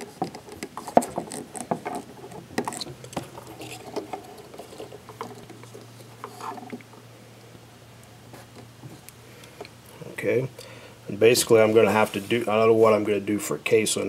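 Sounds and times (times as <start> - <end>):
plastic handling noise: 0.0 - 7.0.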